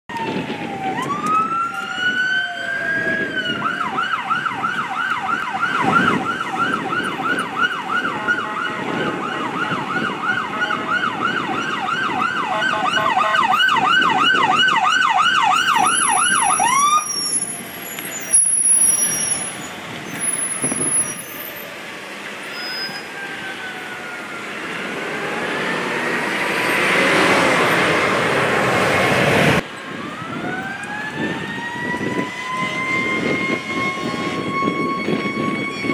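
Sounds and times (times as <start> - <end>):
electronic siren wailing and yelping: 0.1 - 17.6, 30.0 - 35.9
faint second siren wailing: 0.1 - 21.9, 22.5 - 27.8, 29.8 - 35.9
traffic noise: 0.1 - 35.9.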